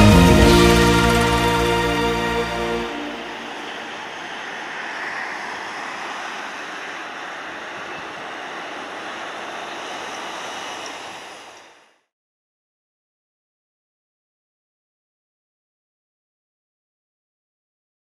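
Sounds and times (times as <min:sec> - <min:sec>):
distant jet engines hissing: 0:00.0 - 0:12.0.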